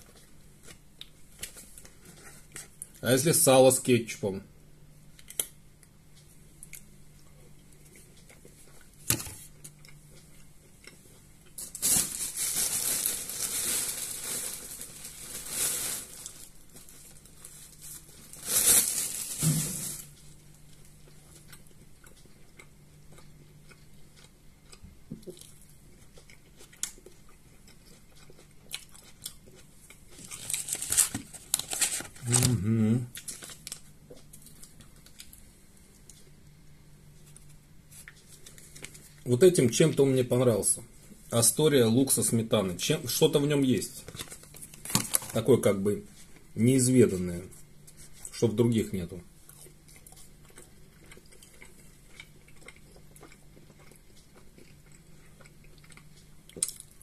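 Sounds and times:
plastic packaging crinkling: 11.6 - 20.2, 30.2 - 32.6, 33.2 - 35.3, 43.8 - 45.8
crunchy chewing: 20.1 - 36.4, 49.4 - 57.0.

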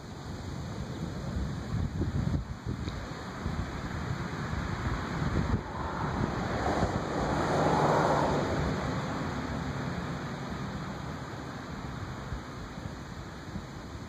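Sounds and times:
wind buffeting microphone: 0.3 - 10.3.

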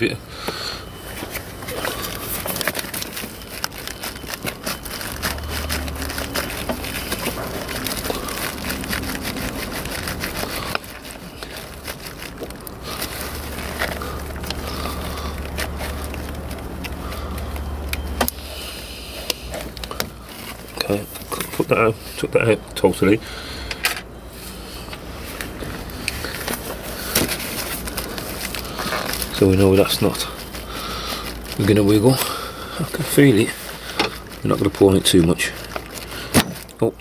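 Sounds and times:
plastic hose coupler rubbing and clicking: 1.3 - 18.4.

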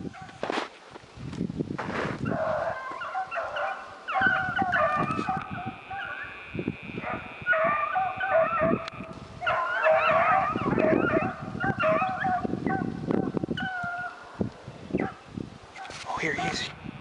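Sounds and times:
hounds baying and yelping: 0.1 - 0.4, 2.2 - 6.4, 7.0 - 14.3, 14.9 - 15.2.

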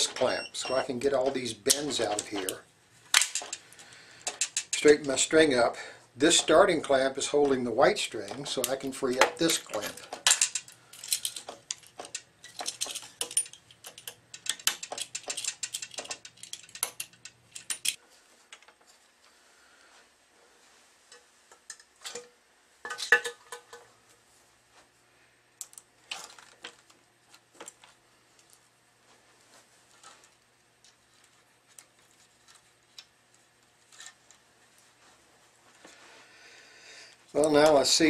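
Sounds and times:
metal clamps clicking: 0.0 - 2.6, 3.2 - 5.4, 6.3 - 18.0.

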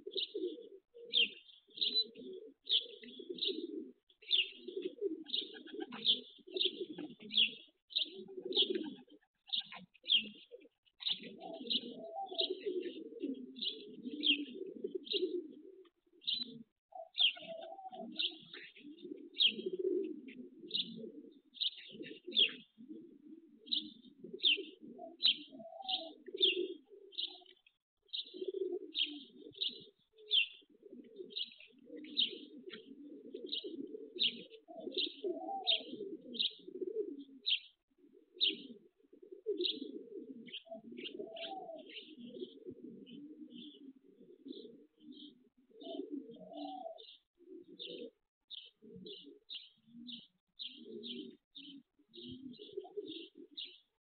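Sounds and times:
pigeons cooing: 0.0 - 54.0
small bird chirping: 9.4 - 12.6, 16.2 - 18.8.

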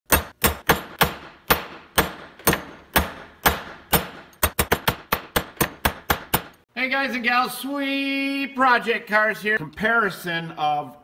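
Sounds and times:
hammer striking steel rods: 0.1 - 6.6.

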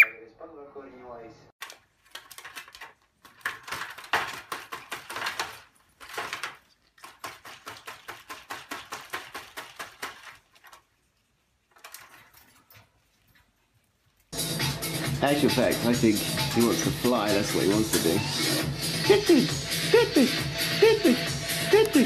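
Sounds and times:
rapid sharp tapping and clicking: 7.0 - 10.4.

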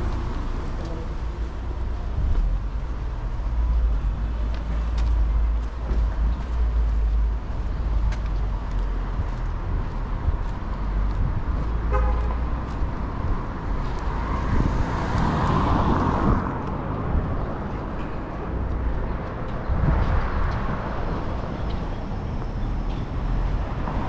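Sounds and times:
traffic engines rumbling: 0.0 - 24.0
car horn toot: 11.9 - 12.4.

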